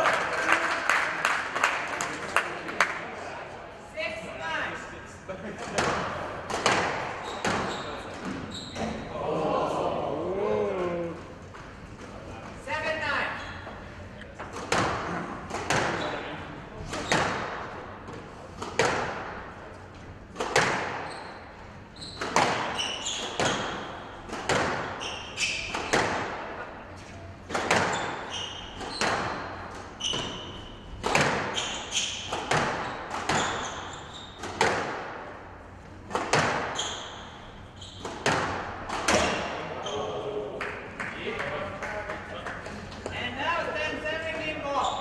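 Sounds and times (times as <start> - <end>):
squash ball hits echoing: 5.6 - 9.0, 14.5 - 19.6, 20.3 - 21.4, 22.1 - 26.6, 27.4 - 43.2
shoe squeaks on court floor: 7.2 - 9.0, 21.0 - 24.1, 24.8 - 26.0, 27.7 - 34.6, 36.6 - 38.3, 39.2 - 40.2, 44.7 - 45.0.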